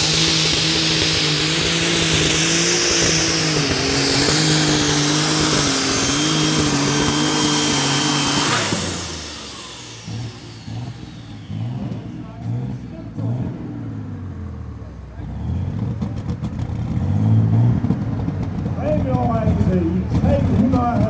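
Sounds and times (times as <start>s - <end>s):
turbo whine: 0.0s - 12.9s
tractor engine at full power: 0.0s - 21.0s.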